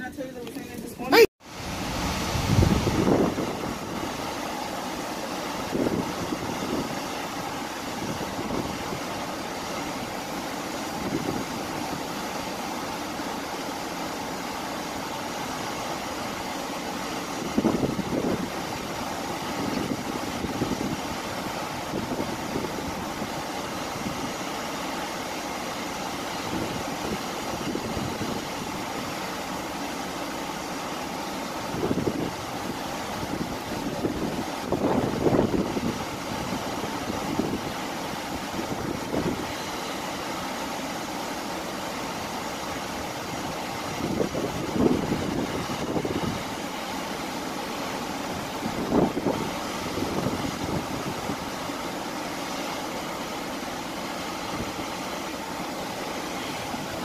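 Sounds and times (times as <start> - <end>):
rush of ship's wake: 0.0 - 57.0
ship running hum: 0.0 - 57.0
wind buffeting microphone: 1.6 - 4.3, 5.5 - 12.1, 17.3 - 24.4, 26.4 - 28.9, 31.6 - 39.6, 43.3 - 46.6, 48.2 - 51.6.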